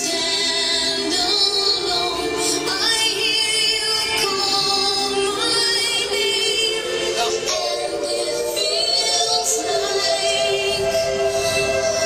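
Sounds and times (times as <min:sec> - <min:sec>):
music with singing: 0:00.0 - 0:12.0.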